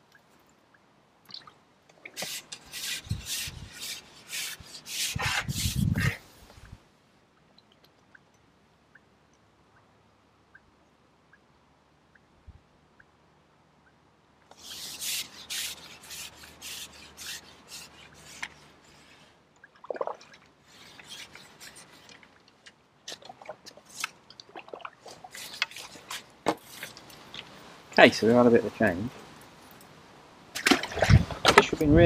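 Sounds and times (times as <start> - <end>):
fishing tackle rubbing and scraping: 2.0 - 6.8, 14.5 - 19.5, 20.6 - 24.4, 25.0 - 27.7.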